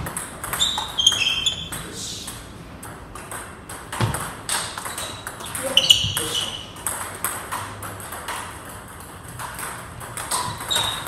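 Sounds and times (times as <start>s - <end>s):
table tennis ball hitting paddles: 0.0s - 11.0s
shoe squeaks: 0.5s - 1.8s, 4.8s - 6.8s, 10.3s - 11.0s.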